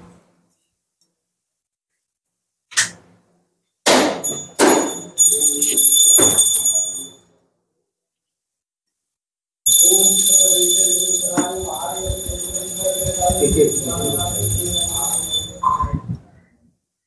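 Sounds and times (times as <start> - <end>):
temple bell ringing: 4.2 - 7.2, 9.7 - 15.7.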